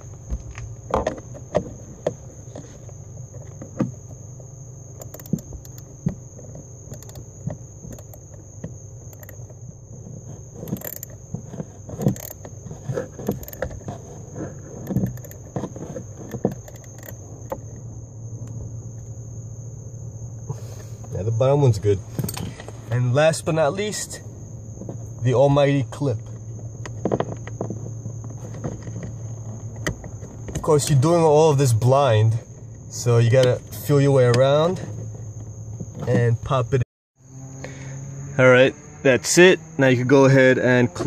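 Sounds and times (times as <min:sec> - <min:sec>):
ratchet wrench clicking: 0:05.0 - 0:05.9, 0:06.9 - 0:07.2, 0:07.9 - 0:08.3, 0:09.1 - 0:09.5, 0:10.6 - 0:11.2, 0:12.0 - 0:12.5, 0:13.2 - 0:13.7, 0:14.8 - 0:15.4, 0:16.5 - 0:17.2.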